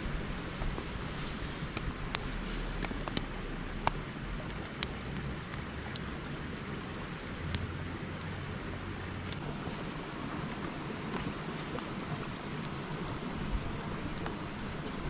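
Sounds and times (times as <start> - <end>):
running water hiss: 0.0 - 15.0
wood fire popping and crackling: 0.0 - 15.0.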